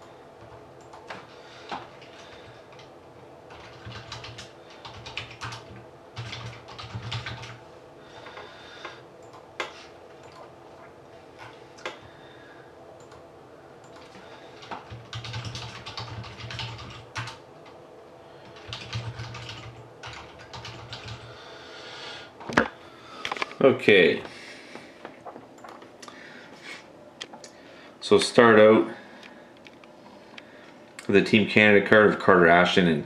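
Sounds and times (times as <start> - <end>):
keyboard typing: 3.5 - 7.6, 13.8 - 17.4, 18.4 - 21.3.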